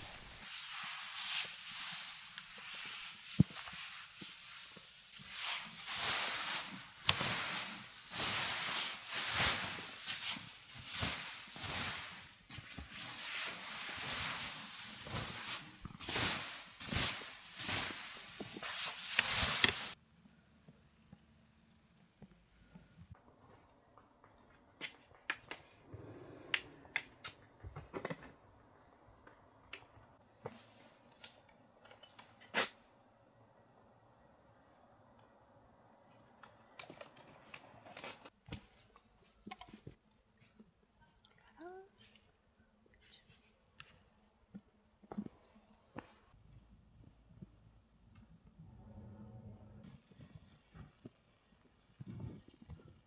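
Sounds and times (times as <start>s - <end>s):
snow swept off tent fabric: 0.0s - 20.0s.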